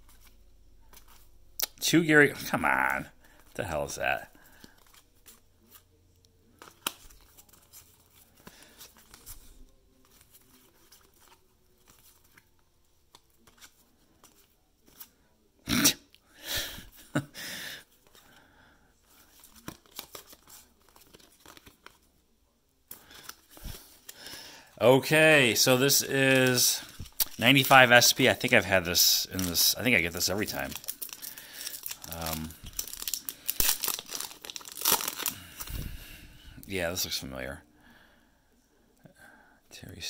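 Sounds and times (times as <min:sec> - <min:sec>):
trading cards clicking and rustling: 0:13.1 - 0:15.1, 0:19.2 - 0:22.1, 0:25.3 - 0:35.7.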